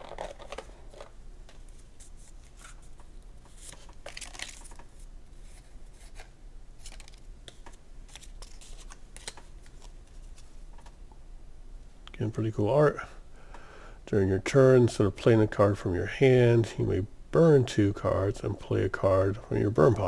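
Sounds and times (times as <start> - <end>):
playing cards rustling and clicking: 0.0 - 11.0.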